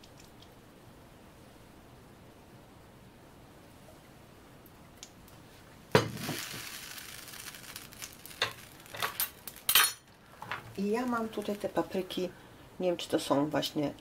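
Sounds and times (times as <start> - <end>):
oil sizzling in pan: 5.4 - 12.4
sharp knock on frying pan: 6.0 - 6.4.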